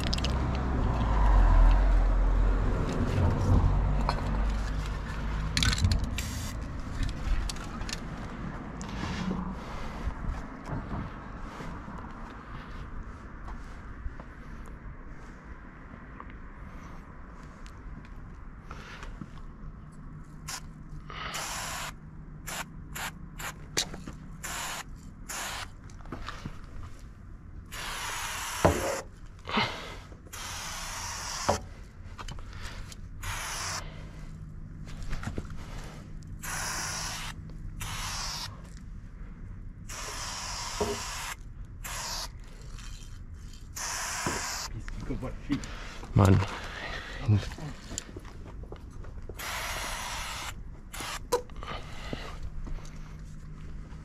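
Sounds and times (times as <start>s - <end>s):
spray paint can hissing: 6.1s - 6.6s, 20.5s - 20.7s, 21.3s - 23.6s, 24.4s - 25.7s, 27.7s - 29.0s, 30.3s - 31.6s, 33.2s - 33.8s, 36.4s - 38.6s, 39.9s - 42.4s, 43.7s - 44.7s, 49.4s - 51.3s.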